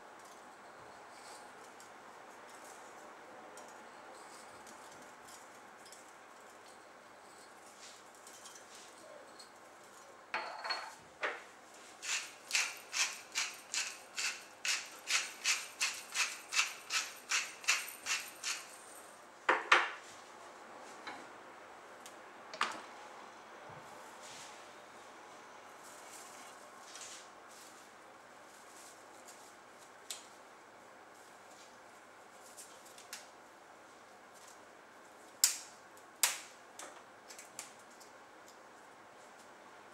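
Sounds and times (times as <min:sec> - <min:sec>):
pepper grinder rasping: 0:12.0 - 0:18.8.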